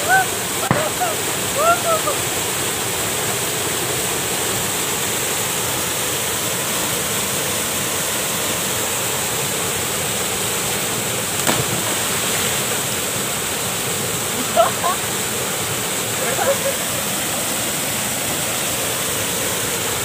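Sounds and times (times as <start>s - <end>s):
waterfall rushing into pool: 0.0s - 20.0s.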